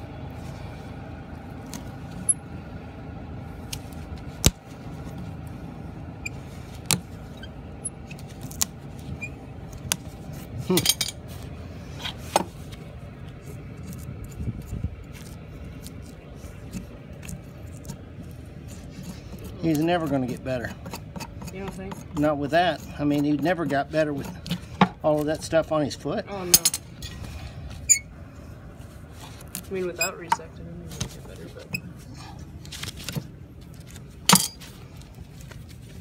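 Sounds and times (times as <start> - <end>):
steady low hum: 0.0 - 36.0
tool scraping hoof: 11.3 - 26.0.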